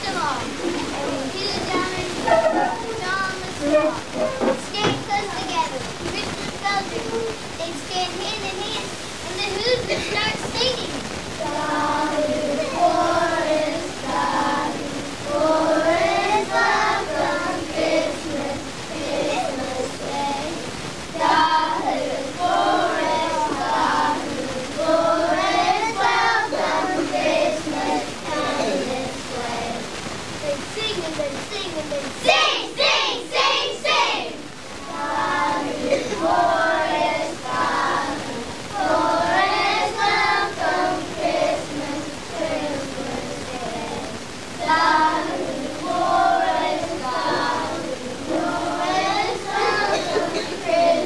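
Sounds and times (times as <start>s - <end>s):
children singing: 0.0s - 7.2s, 8.9s - 31.2s, 32.0s - 51.0s
loud children's voices: 0.0s - 51.0s.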